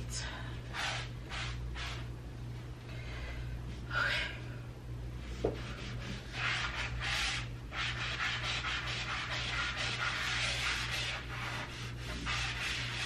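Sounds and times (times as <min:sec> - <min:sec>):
steady low hum: 0:00.0 - 0:13.0
foam eraser scrubbing wall: 0:00.7 - 0:02.1, 0:05.3 - 0:13.0.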